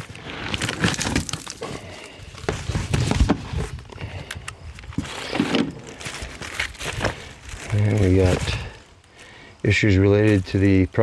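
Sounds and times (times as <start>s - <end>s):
plastic and cardboard crinkling: 0.0s - 4.0s, 4.8s - 8.9s.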